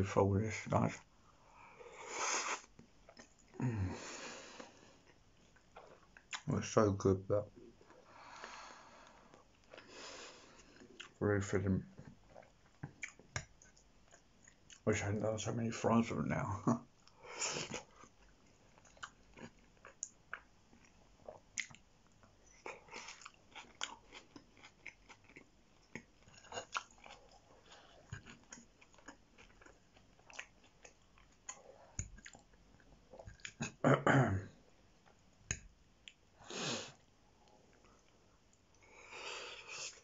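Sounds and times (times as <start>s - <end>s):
person chewing food: 2.5s - 6.5s, 7.7s - 11.2s, 12.0s - 14.8s, 17.0s - 33.8s.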